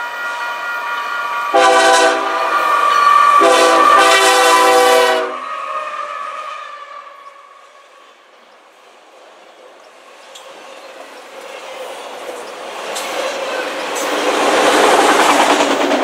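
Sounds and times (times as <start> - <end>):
train cars rolling by: 0.0 - 16.0
locomotive air horn: 1.5 - 7.8.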